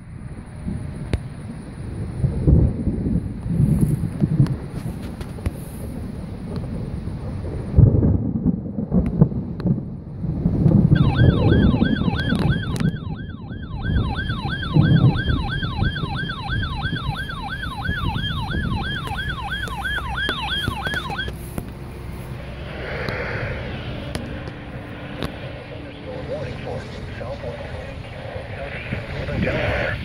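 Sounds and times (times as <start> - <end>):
thunder rumbling: 0.0 - 30.0
siren yelping: 11.0 - 21.7, 22.3 - 30.0.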